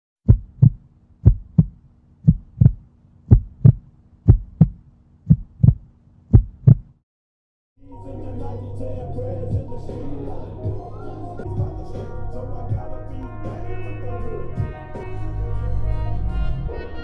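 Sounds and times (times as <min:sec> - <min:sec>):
heartbeat thumps: 0:00.2 - 0:07.0, 0:11.6 - 0:11.8.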